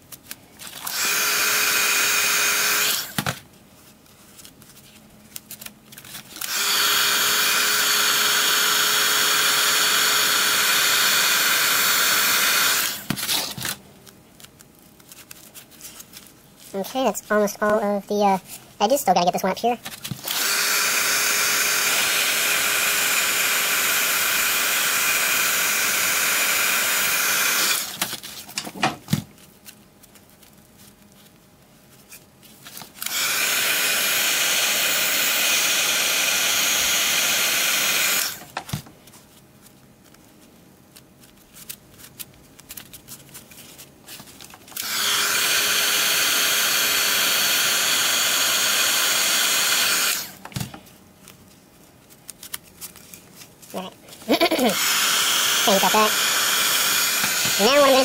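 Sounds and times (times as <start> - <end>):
hot-air tool blowing: 0.7 - 3.3, 6.4 - 13.6, 20.2 - 28.0, 33.0 - 38.5, 44.8 - 50.4, 54.2 - 58.0.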